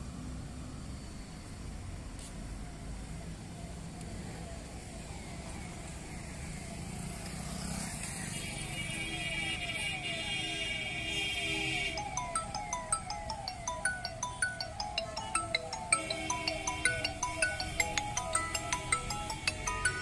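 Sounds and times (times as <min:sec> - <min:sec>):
road traffic rumble: 0:00.0 - 0:20.0
repeating falling tone: 0:12.0 - 0:20.0.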